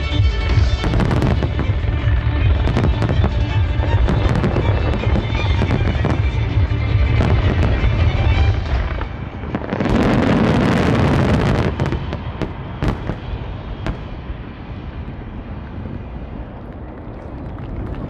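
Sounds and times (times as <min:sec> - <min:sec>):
sharp fireworks bangs: 0:00.0 - 0:16.5
fireworks bursting and crackling: 0:00.0 - 0:18.0
fireworks rumble: 0:00.0 - 0:18.0.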